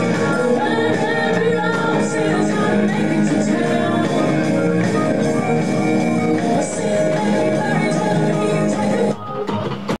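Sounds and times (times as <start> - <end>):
rock and roll band with electric guitar: 0.0 - 10.0.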